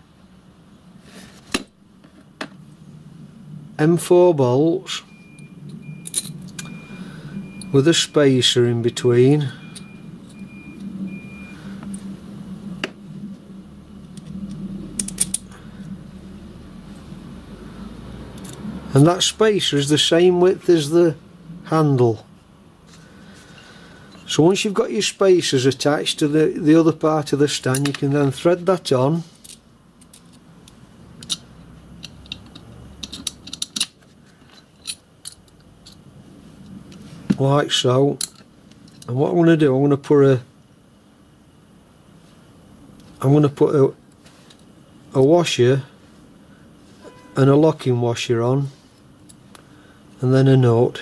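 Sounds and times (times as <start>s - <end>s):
faint high whine: 0.0s - 31.9s, 34.4s - 51.0s
steady low hum: 0.0s - 51.0s
metal parts tapping: 5.4s - 6.8s, 14.0s - 15.5s, 29.4s - 36.0s.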